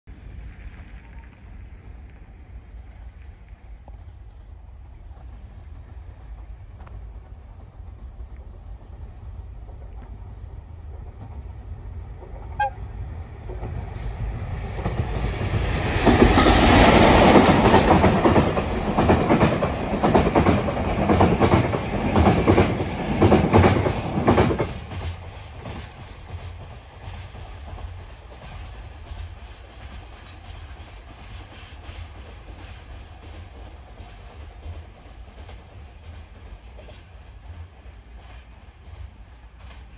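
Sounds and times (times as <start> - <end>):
freight train passing: 0.1 - 39.9
locomotive whistle blast: 12.6 - 12.8.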